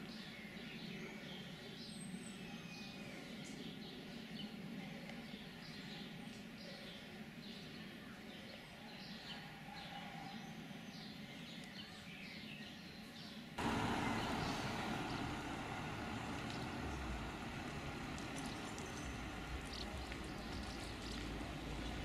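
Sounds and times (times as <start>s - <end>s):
birds chirping: 11.0s - 22.0s
passing vehicle rumble: 13.6s - 22.0s
road traffic: 13.6s - 22.0s.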